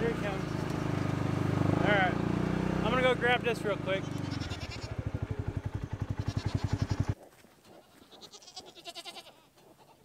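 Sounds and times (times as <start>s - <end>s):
utility vehicle engine running: 0.0s - 7.2s
goats bleating: 0.1s - 1.0s, 4.0s - 5.1s, 6.1s - 10.0s.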